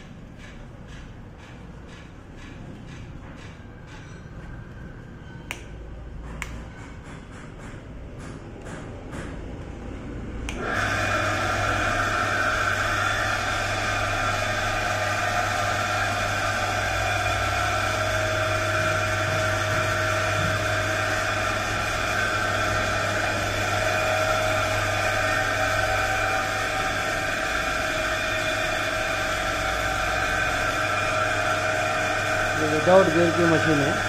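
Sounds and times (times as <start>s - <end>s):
belts and pulleys whirring: 10.6s - 34.0s
electric motor humming: 10.6s - 34.0s.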